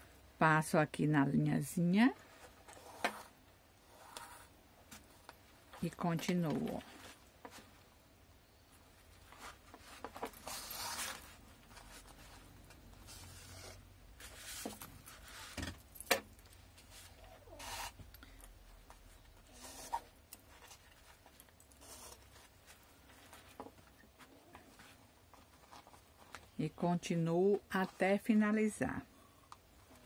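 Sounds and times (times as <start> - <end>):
cloth rustling: 8.9 - 18.1.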